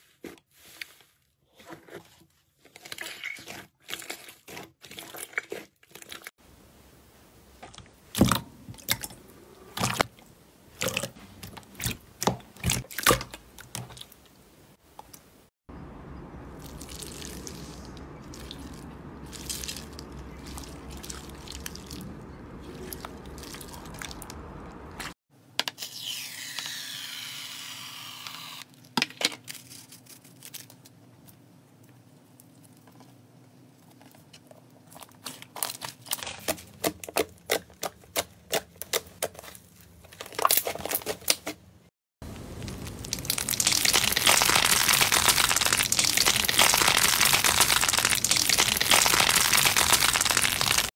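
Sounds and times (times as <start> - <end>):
crunchy slime crackle: 16.6 - 25.1, 34.5 - 41.6, 42.2 - 50.9
slime crackling: 16.6 - 25.1, 42.3 - 50.9.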